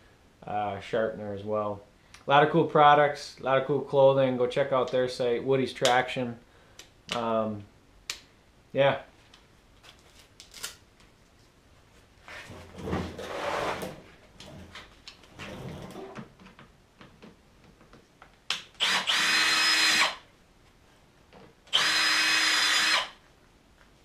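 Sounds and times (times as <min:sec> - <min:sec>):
gloves rustling and tool handling: 0:09.1 - 0:18.6
drill whining against metal studs: 0:18.8 - 0:20.2, 0:21.7 - 0:23.2.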